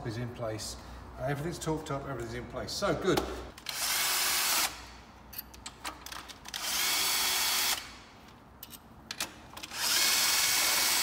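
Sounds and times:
cordless power tool whirring: 9.6s - 11.0s.

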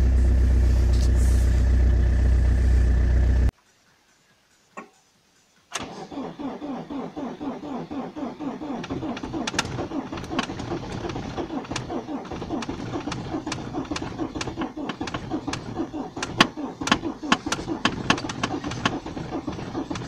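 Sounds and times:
diesel engine cranking: 0.0s - 3.5s, 5.7s - 20.0s
sharp diesel knocks: 8.8s - 20.0s.

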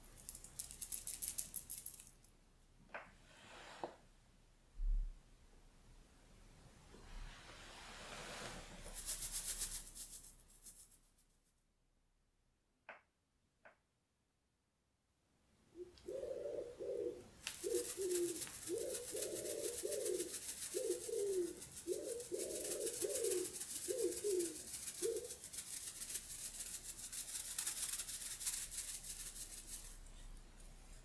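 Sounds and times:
grainy rustling hiss: 3.2s - 4.1s, 6.7s - 11.2s, 16.2s - 31.0s
dove-like cooing: 15.8s - 25.5s.

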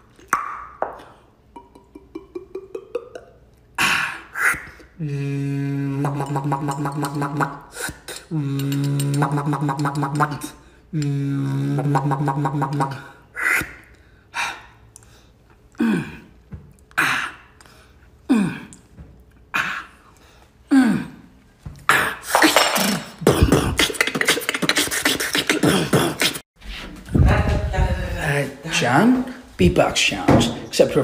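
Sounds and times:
beatbox hum: 0.1s - 14.0s, 21.9s - 26.4s.

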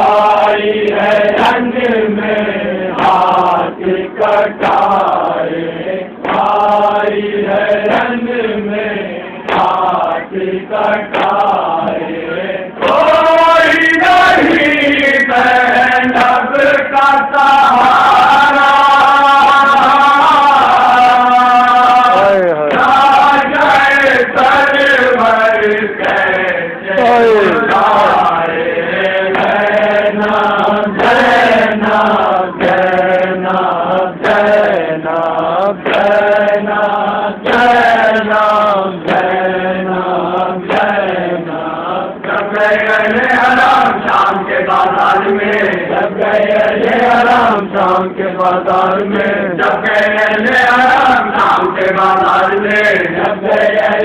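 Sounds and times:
men chanting in unison: 0.0s - 54.0s
chest-beating slaps: 6.2s - 6.8s, 9.4s - 10.0s, 11.1s - 12.1s.

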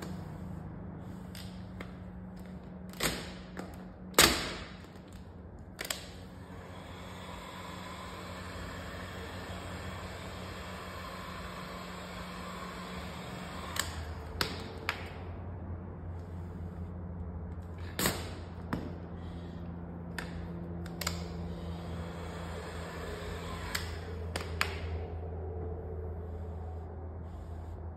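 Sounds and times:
steady low hum: 0.0s - 27.9s
heat gun blowing: 6.3s - 15.1s, 20.8s - 25.0s.

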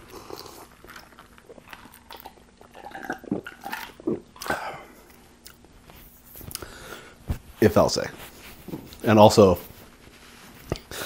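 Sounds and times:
person gulping and swallowing: 0.0s - 5.7s.

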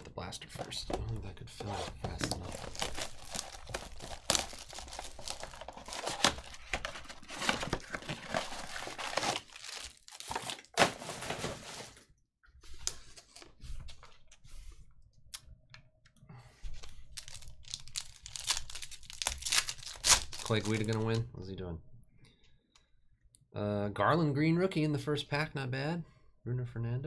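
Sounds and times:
card packs clicking and rustling: 0.0s - 12.0s, 16.8s - 21.2s
plastic wrap crinkling and tearing: 2.2s - 12.0s, 16.8s - 21.2s.

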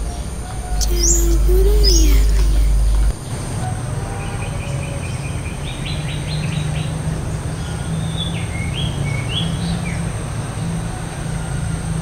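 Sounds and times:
low background rumble: 0.0s - 3.2s
bird singing: 0.8s - 3.1s.

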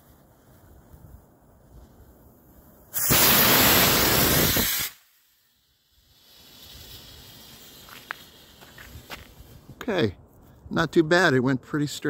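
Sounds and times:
rocket motor rushing hiss: 2.9s - 9.8s.

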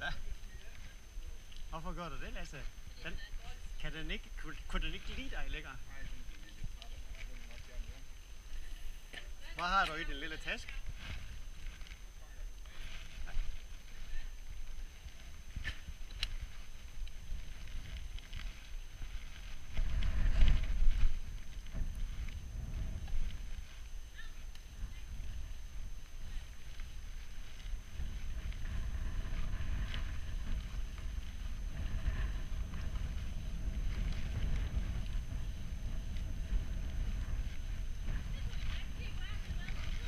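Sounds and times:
bike tyres rumbling on dirt: 0.0s - 40.0s
wind on microphone: 0.0s - 40.0s.

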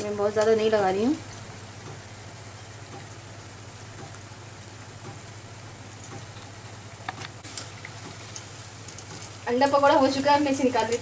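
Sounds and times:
food deep-frying in oil: 0.0s - 11.0s.

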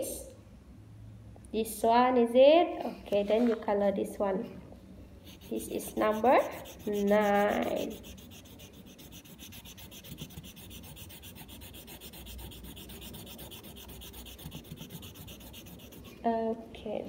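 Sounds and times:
pencil shading on paper: 5.2s - 16.2s.

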